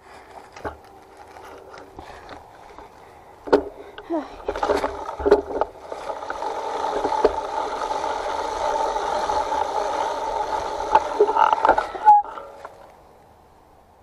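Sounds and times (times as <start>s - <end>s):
bike rattling on dirt trail: 0.0s - 13.0s
bike squeak: 8.6s - 12.8s.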